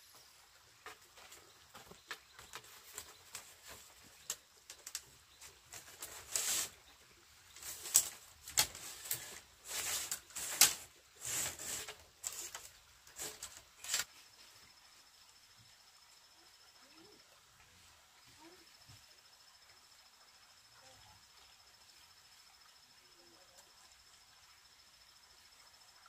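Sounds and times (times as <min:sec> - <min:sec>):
bamboo strips scraping and rustling: 0:00.8 - 0:14.3.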